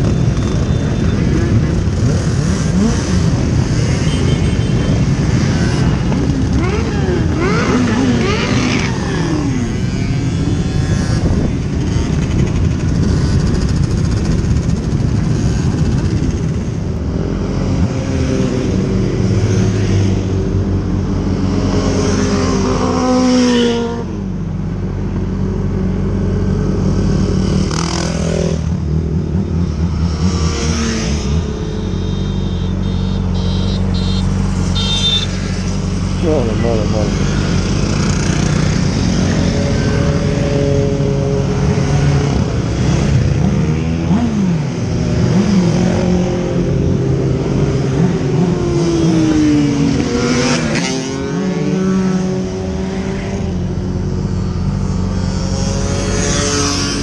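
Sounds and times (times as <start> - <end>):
motorcycles passing by: 0.0 - 57.0
motorcycle engine running: 10.3 - 17.1.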